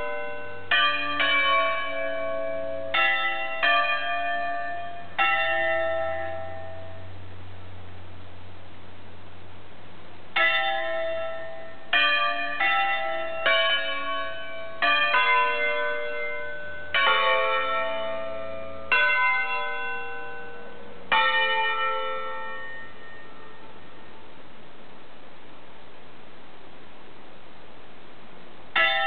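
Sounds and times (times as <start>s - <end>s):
church bells ringing: 0.0s - 7.6s, 10.3s - 24.5s, 28.7s - 29.0s.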